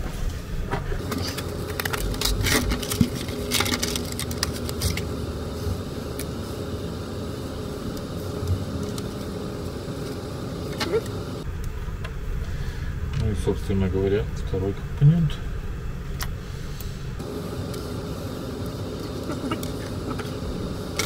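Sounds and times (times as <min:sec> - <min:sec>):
low background hum: 0:00.0 - 0:21.0
packaging rustling and clicking: 0:01.0 - 0:05.1.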